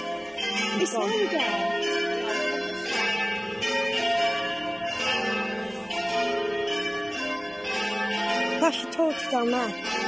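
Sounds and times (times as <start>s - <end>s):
church bells ringing: 0.0s - 10.0s.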